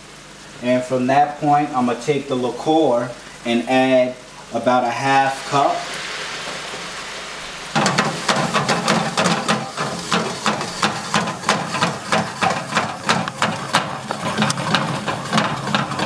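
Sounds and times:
sauce sizzling in a skillet: 0.0s - 16.0s
skillet clattering on burner grate: 7.8s - 16.0s.

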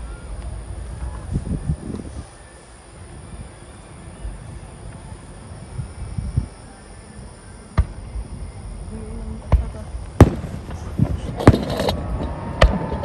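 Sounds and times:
firework crackling: 0.0s - 13.0s
firework bangs: 9.4s - 13.0s.

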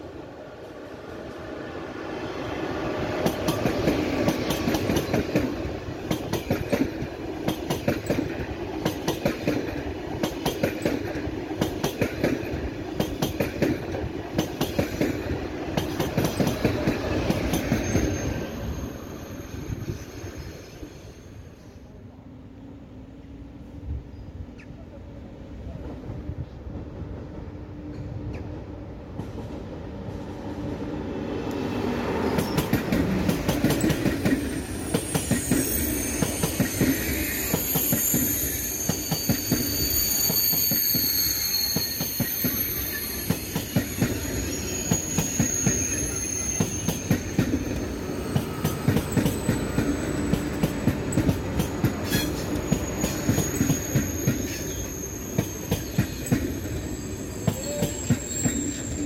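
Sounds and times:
train passing rumble: 0.0s - 59.0s
wheels clicking on track: 32.3s - 58.9s
high-pitched squeal: 33.9s - 51.3s, 52.0s - 59.0s.

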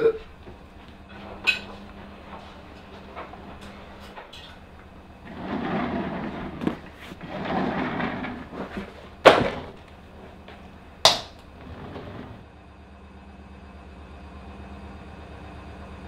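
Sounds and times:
sharp knocks: 11.0s - 11.4s.

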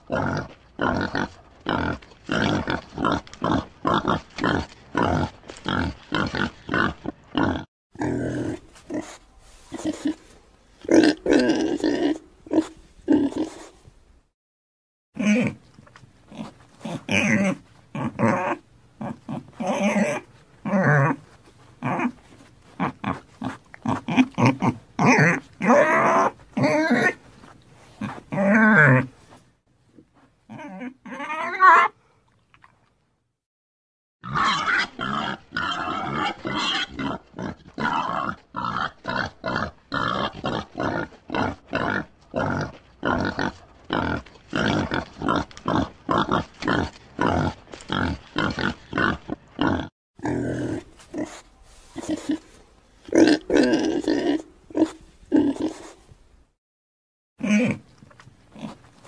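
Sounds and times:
pigs grunting: 0.0s - 13.7s, 15.2s - 15.6s, 16.3s - 27.2s, 34.2s - 51.4s, 52.0s - 56.0s, 57.4s - 57.9s, 58.5s - 58.9s
pig squealing: 16.4s - 21.2s, 23.9s - 27.2s, 30.5s - 32.0s, 34.2s - 51.4s.

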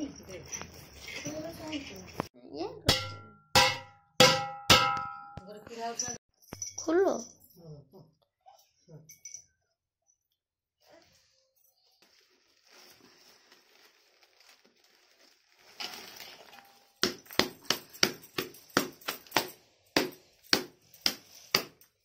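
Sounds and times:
sharp evenly spaced knocks: 3.0s - 5.4s
charred leaves rustling and crackling: 12.0s - 17.2s.

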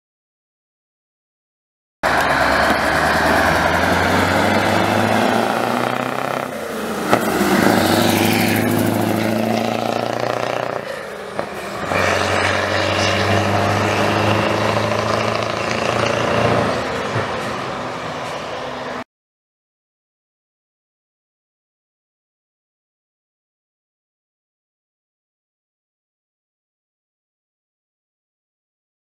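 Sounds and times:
truck engine accelerating: 2.0s - 19.0s.

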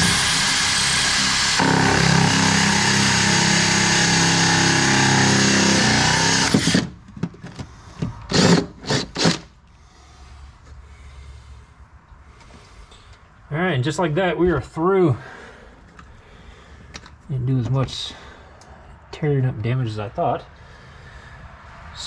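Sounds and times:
cordless drill with hole saw: 0.0s - 6.9s, 8.3s - 9.5s.

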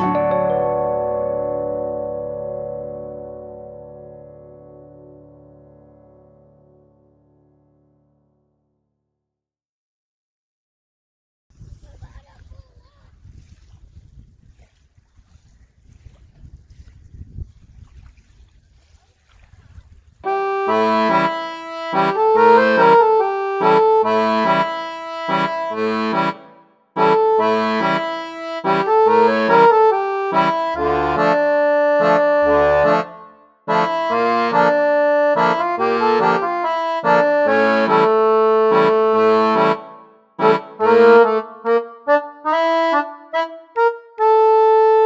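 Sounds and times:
lively accordion tune: 0.0s - 3.1s, 20.2s - 45.0s.

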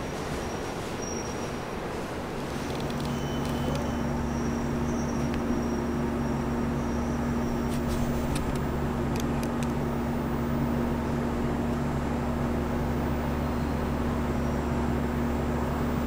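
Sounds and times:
subway train humming: 0.0s - 16.0s.

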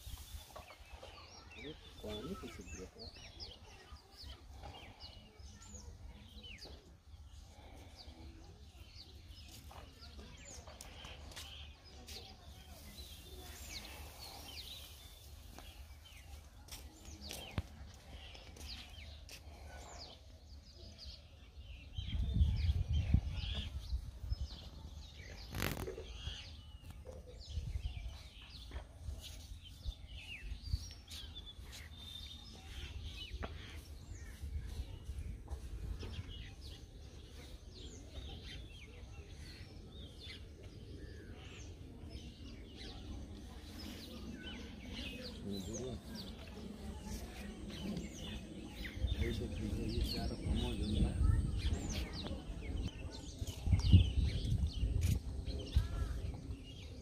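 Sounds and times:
small birds chirping: 0.0s - 57.0s
low rumble on microphone: 41.0s - 57.0s.

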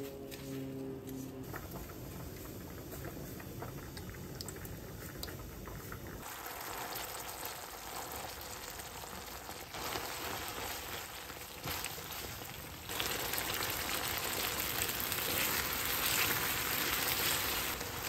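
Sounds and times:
food sizzling in a pan: 4.9s - 18.0s.

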